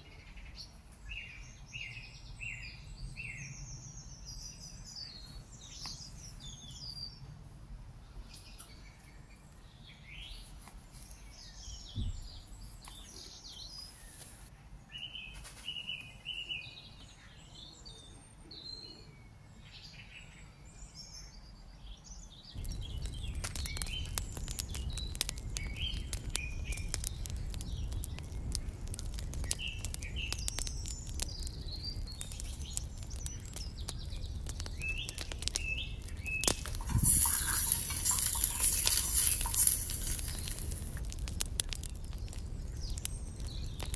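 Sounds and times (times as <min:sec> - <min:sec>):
small birds chirping: 0:00.0 - 0:07.4, 0:08.0 - 0:43.9
wood fire crackling: 0:22.6 - 0:43.9.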